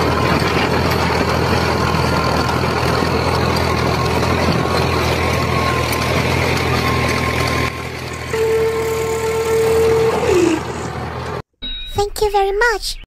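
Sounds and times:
tractor engine idling: 0.0 - 11.4.

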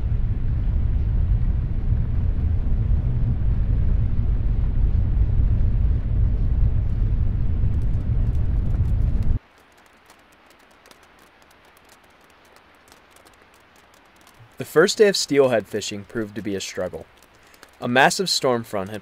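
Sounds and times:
car cabin road rumble: 0.0 - 9.4
raindrops pattering on water: 0.0 - 19.0.

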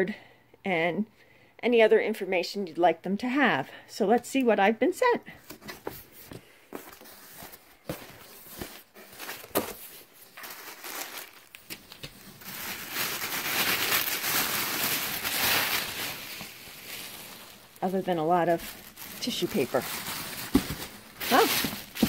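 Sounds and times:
tissue paper crinkling: 6.7 - 22.0.

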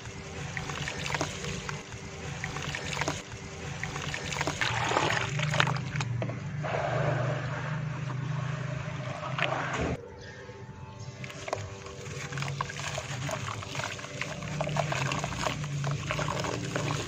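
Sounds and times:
hands sloshing in muddy water: 11.2 - 17.0.

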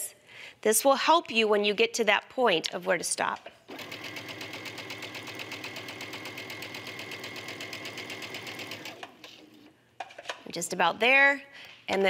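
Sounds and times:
sewing machine stitching: 3.7 - 9.7.

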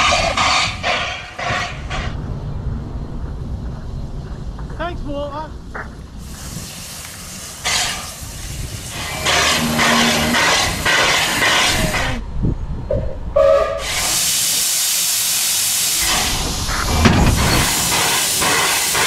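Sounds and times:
steam hissing: 0.0 - 2.2, 6.2 - 12.2, 13.7 - 19.0
steam locomotive beats: 5.7 - 12.2, 12.9 - 19.0
loud hiss of escaping steam: 6.2 - 12.2, 13.7 - 19.0.

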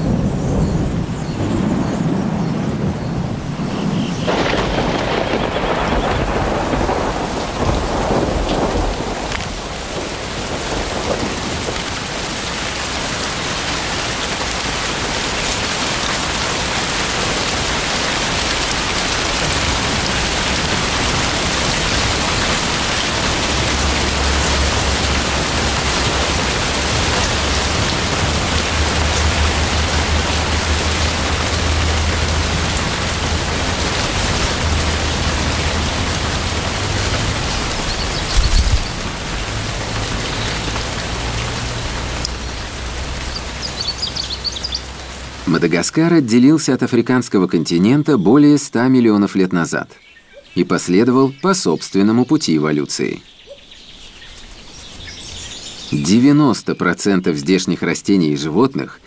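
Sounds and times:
thunder rumbling: 0.0 - 45.8
heavy rain pouring: 0.0 - 59.0.

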